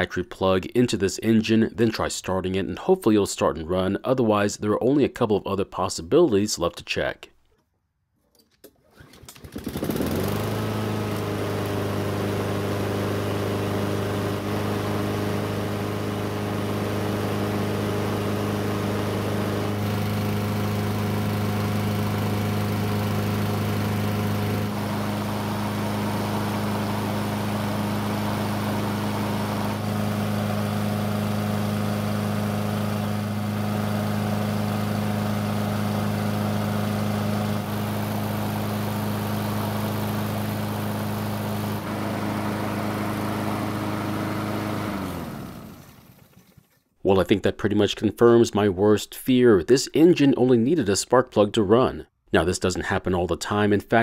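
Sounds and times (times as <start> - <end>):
lawn mower engine running: 8.8 - 46.8.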